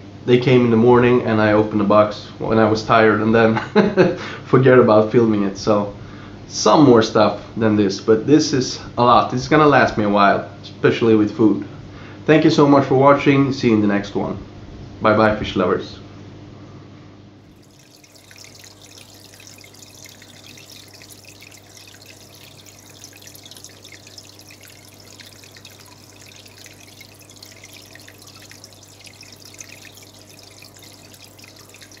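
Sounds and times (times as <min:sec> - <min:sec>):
water trickling and dripping: 0:17.5 - 0:32.0.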